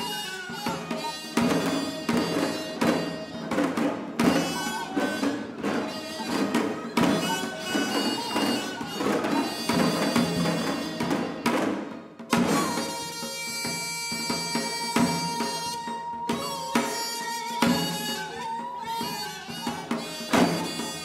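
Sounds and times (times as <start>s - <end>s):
wavering held melody notes: 0.0s - 11.2s
hourglass drum strokes: 0.0s - 21.0s.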